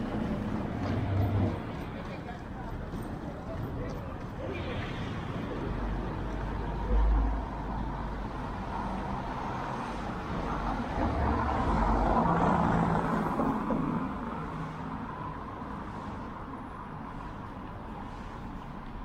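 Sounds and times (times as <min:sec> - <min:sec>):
street noise: 0:00.0 - 0:19.0.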